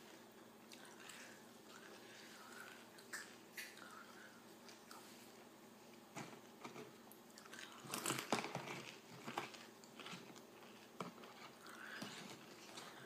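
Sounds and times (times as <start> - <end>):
chewing crunchy chips: 7.3 - 13.0.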